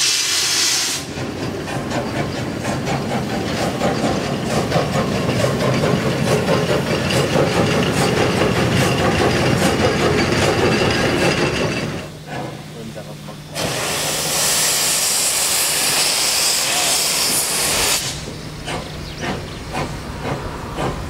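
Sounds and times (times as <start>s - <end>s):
steam locomotive passing: 0.0s - 21.0s
wheels clattering over rail joints: 1.2s - 12.7s.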